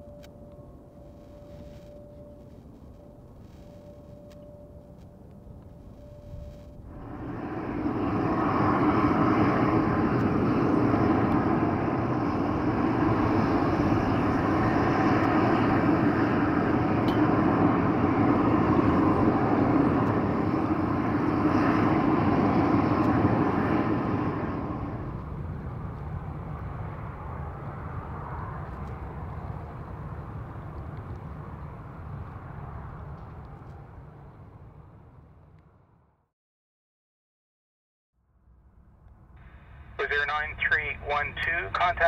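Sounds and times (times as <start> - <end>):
jet engine roaring: 5.8 - 34.9, 39.4 - 42.0.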